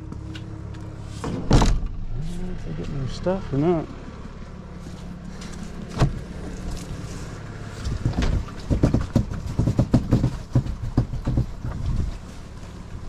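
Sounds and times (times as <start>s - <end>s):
engine humming: 0.0s - 13.0s
knocks and thumps: 7.8s - 12.1s.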